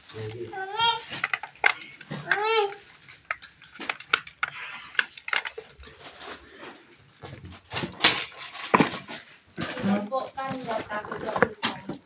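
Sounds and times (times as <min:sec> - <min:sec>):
small hard objects clicking: 0:00.1 - 0:05.9
scraping rustle: 0:05.5 - 0:12.0.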